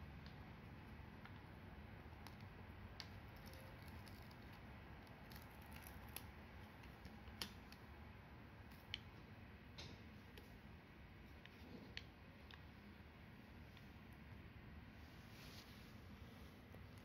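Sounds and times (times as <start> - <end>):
paper liner crinkling and ticking: 0.2 - 7.9.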